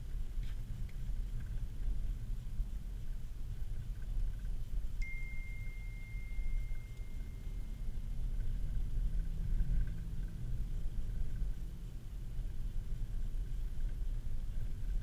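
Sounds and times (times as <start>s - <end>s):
car engine and road rumble: 0.0s - 15.0s
high ding: 5.0s - 8.0s.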